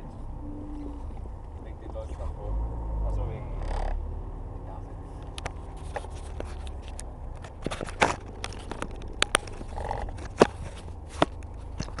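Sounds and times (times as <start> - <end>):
diesel engine drone in cabin: 0.0 - 7.4
road noise: 0.0 - 12.0
sharp clicks and knocks: 5.2 - 12.0.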